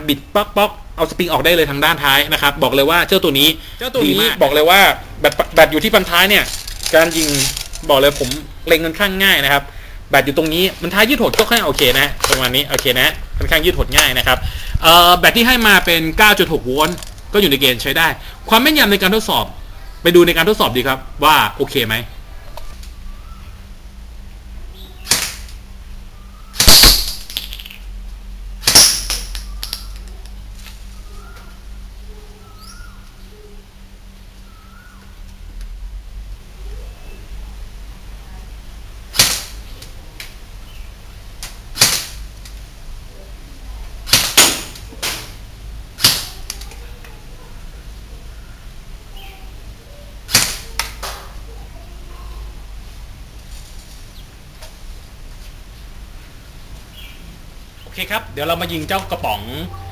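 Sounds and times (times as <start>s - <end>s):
airsoft rifle shots: 25.0s - 25.6s, 26.6s - 27.3s, 28.6s - 29.4s, 39.1s - 39.6s, 41.7s - 42.2s, 44.1s - 45.4s, 46.0s - 46.4s, 50.3s - 51.0s
pellets striking plastic targets: 26.6s - 27.8s, 28.6s - 29.8s, 44.1s - 45.4s, 50.3s - 51.2s
airsoft rifle firing single shots: 28.6s - 29.2s, 39.1s - 39.6s.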